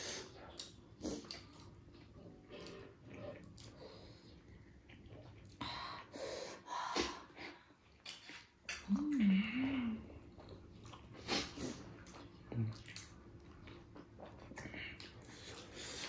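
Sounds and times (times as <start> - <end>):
person chewing: 0.2 - 5.6, 7.8 - 9.2, 10.2 - 16.0
person humming mmm: 8.8 - 10.2.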